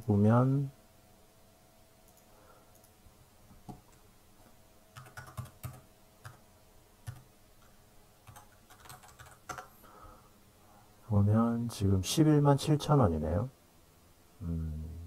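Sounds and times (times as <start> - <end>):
computer keyboard key clicks: 8.3 - 9.7.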